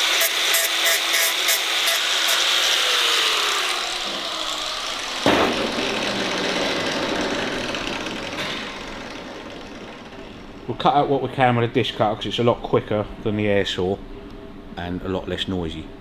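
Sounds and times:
angle grinder on sheet steel: 0:00.0 - 0:10.7
sharp clunk: 0:05.2 - 0:06.1.

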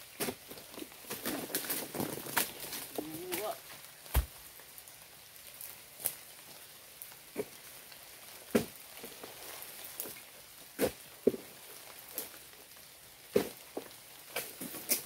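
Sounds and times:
faint rain hiss: 0:00.0 - 0:15.0
raindrops tapping: 0:00.4 - 0:15.0.

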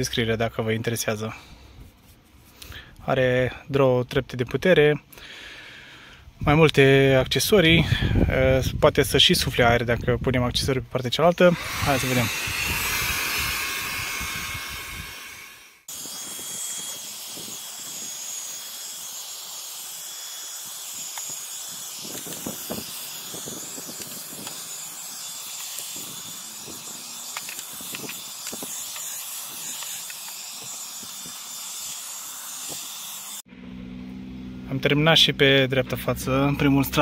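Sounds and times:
handheld vacuum cleaner whine: 0:11.4 - 0:34.1.

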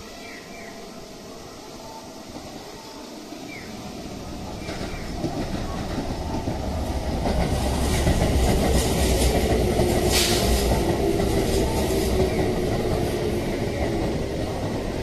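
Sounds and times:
train wheels rumbling on rail: 0:02.2 - 0:15.0
brief hiss: 0:10.1 - 0:10.7.

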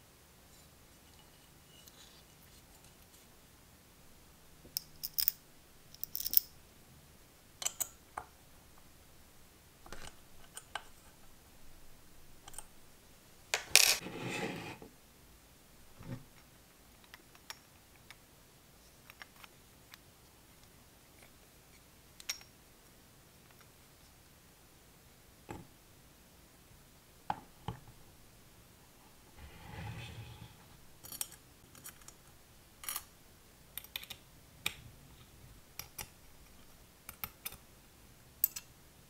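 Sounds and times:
small metal parts clicking: 0:04.8 - 0:06.5, 0:38.4 - 0:38.7.

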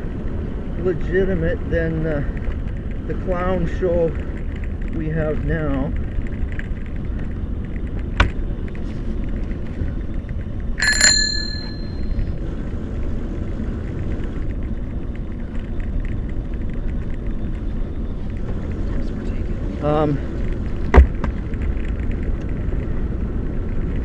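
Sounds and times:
wheels rolling on pavement: 0:00.0 - 0:24.0
bicycle bell ringing: 0:10.8 - 0:12.3.

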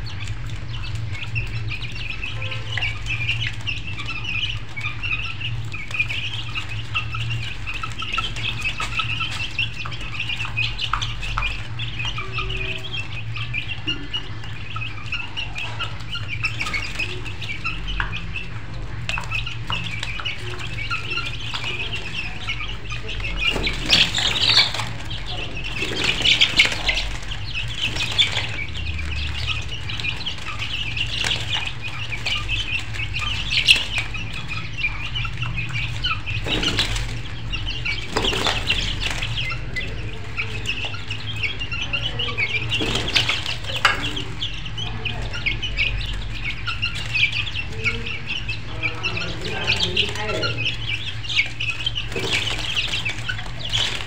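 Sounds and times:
chickens clucking: 0:00.0 - 0:54.0
wings flapping: 0:14.4 - 0:41.6, 0:42.3 - 0:44.6, 0:49.3 - 0:54.0.

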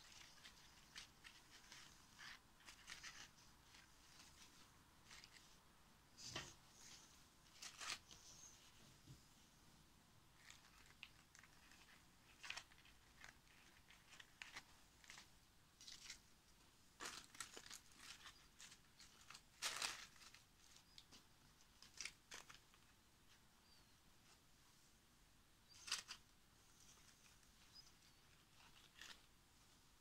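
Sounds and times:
dry leaves and paper rustling: 0:00.0 - 0:05.4, 0:17.0 - 0:22.9.

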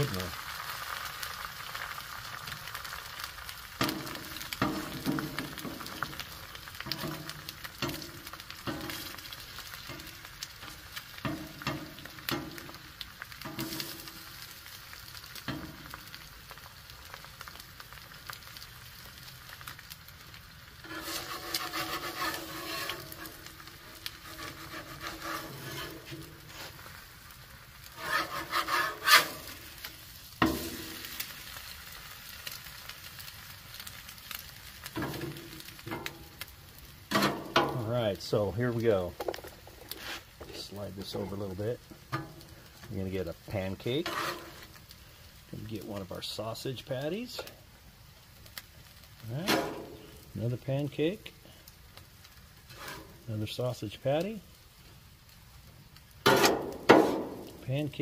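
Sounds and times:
egg sizzling on griddle: 0:00.0 - 0:58.0
metal spatula scraping griddle: 0:03.8 - 0:12.8, 0:13.4 - 0:14.4, 0:15.4 - 0:16.1, 0:20.8 - 0:27.0, 0:27.9 - 0:31.3, 0:34.9 - 0:36.3, 0:37.1 - 0:37.8, 0:39.5 - 0:40.4, 0:41.0 - 0:42.5, 0:43.5 - 0:44.8, 0:49.2 - 0:50.2, 0:52.7 - 0:53.3, 0:56.2 - 0:58.0.

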